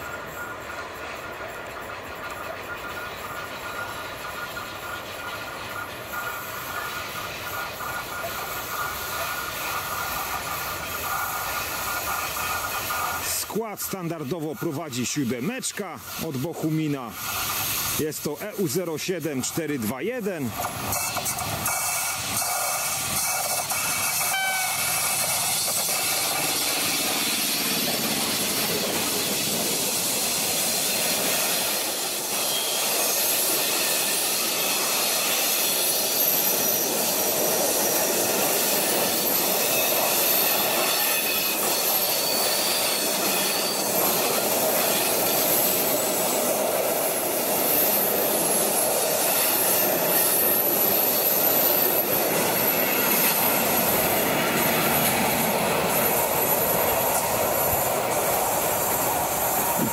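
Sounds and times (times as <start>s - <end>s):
train wheels on rails: 0.0s - 59.9s
high-pitched wheel squeal: 32.3s - 46.4s.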